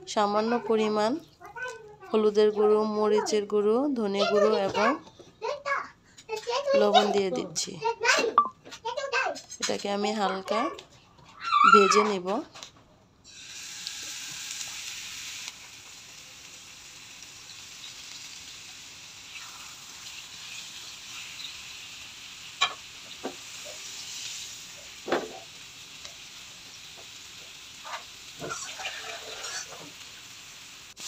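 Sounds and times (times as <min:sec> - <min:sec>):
fish sizzling in hot oil: 0:13.3 - 0:31.0.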